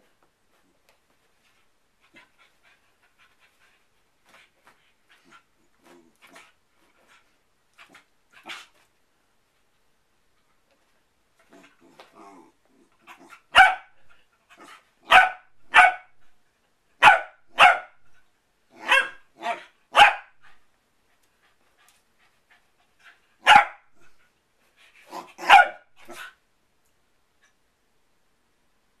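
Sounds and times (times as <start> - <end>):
puppy barking: 13.5 - 14.0, 15.0 - 16.2, 17.0 - 18.0, 18.8 - 20.4, 23.4 - 23.9, 25.1 - 26.2.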